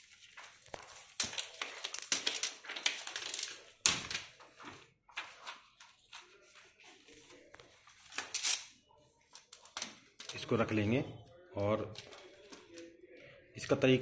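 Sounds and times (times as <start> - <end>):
plastic sheets rustling and crinkling: 0.0 - 10.7.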